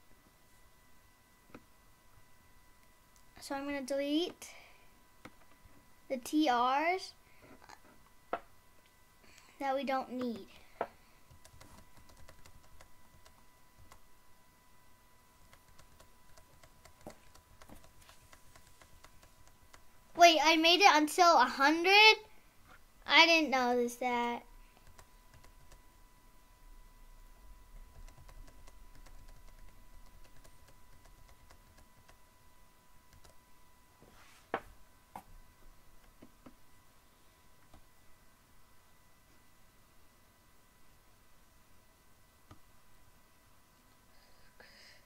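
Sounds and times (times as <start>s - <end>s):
faint high whine: 0.0s - 45.0s
keyboard keys clicking: 11.3s - 14.0s, 15.4s - 19.8s, 27.9s - 32.2s.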